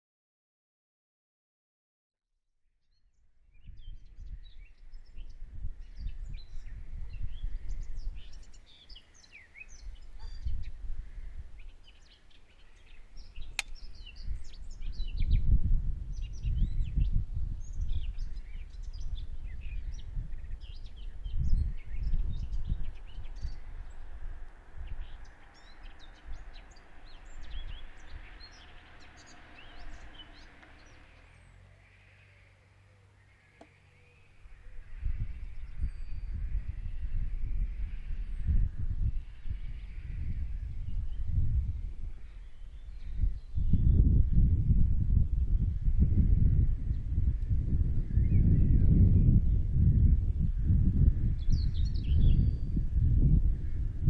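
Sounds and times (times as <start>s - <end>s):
birds chirping and singing: 3.5s - 44.5s, 45.6s - 53.8s
uneven low rumble: 12.6s - 32.5s, 34.3s - 54.0s
sharp click: 13.6s - 13.9s.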